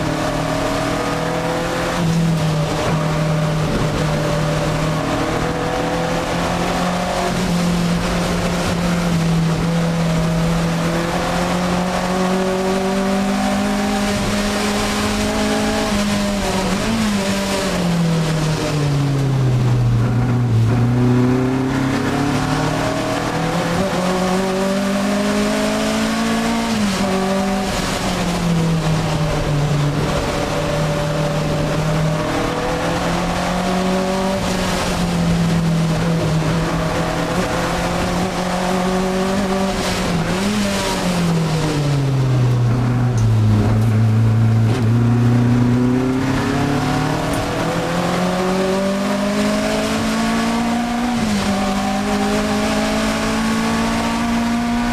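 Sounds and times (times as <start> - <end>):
car engine revving: 0.0 - 54.9.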